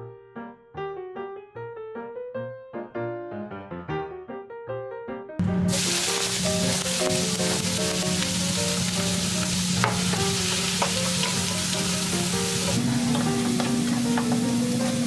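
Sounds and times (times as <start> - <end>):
meat sizzling in a wok: 5.4 - 15.0
spatula scraping and knocking pan: 9.7 - 15.0.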